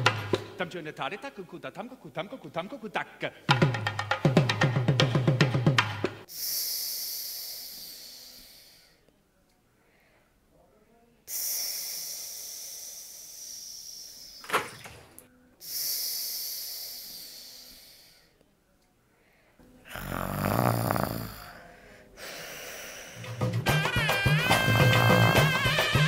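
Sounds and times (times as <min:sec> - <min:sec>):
woman snoring: 0:19.8 - 0:23.4, 0:24.6 - 0:25.6.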